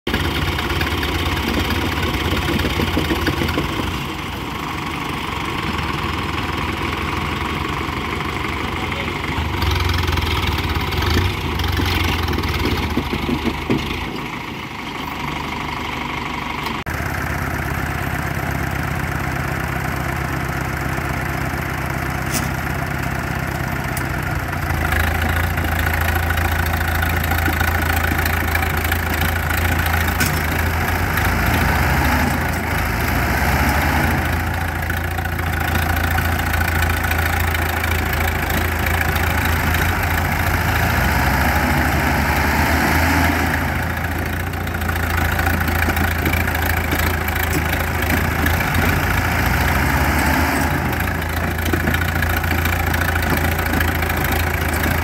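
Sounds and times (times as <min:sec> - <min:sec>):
tractor diesel engines under load: 0:00.0 - 0:55.0.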